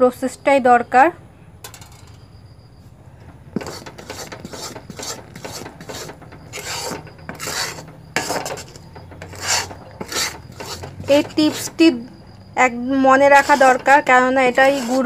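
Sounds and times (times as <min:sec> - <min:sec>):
spatula scraping sticky syrup in pan: 0:03.6 - 0:11.9, 0:13.2 - 0:15.0.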